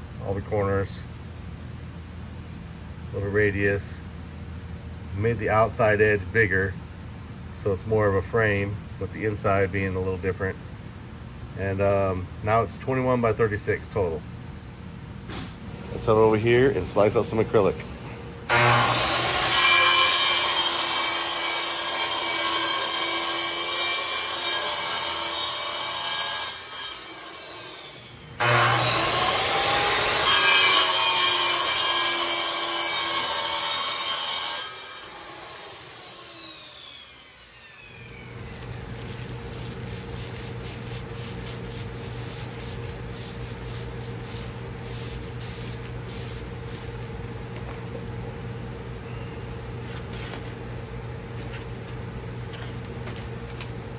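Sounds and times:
power tool cutting acrylic: 18.5 - 41.6
quiet steady hum: 36.2 - 53.9.

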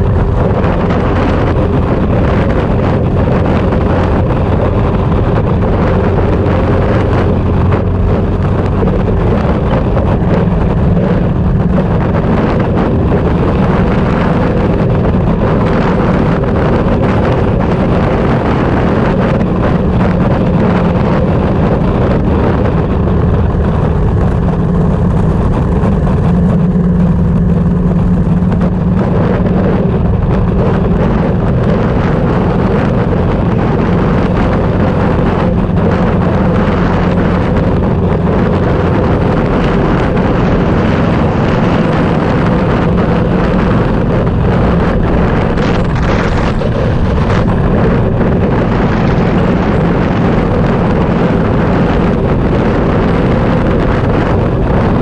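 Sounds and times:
vehicle engine droning: 0.0 - 55.0
wind buffeting microphone: 0.0 - 55.0.

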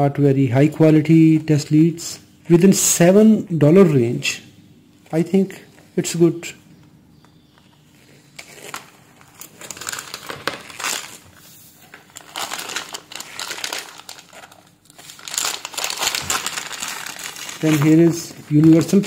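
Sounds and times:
plastic bag crinkling: 8.0 - 19.0.

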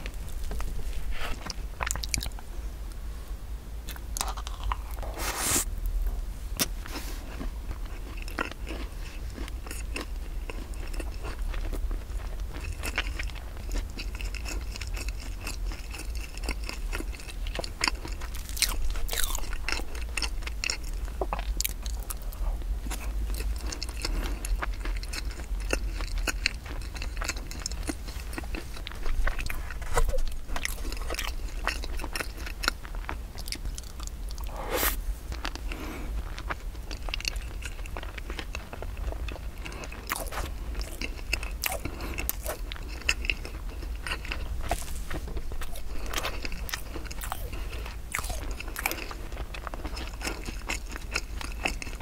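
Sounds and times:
chewing with mouth clicks: 0.0 - 2.5, 3.9 - 5.0, 6.6 - 34.6, 35.3 - 52.0
low hum: 32.8 - 39.6.

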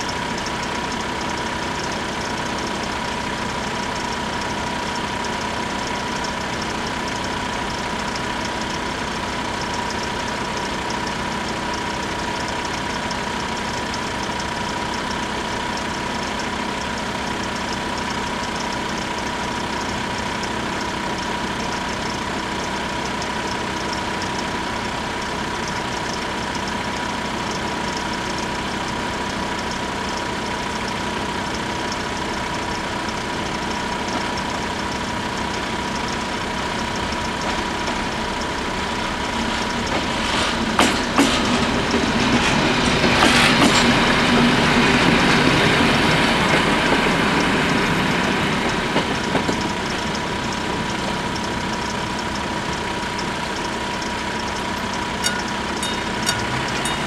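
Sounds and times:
level crossing bells ringing: 49.6 - 57.0.

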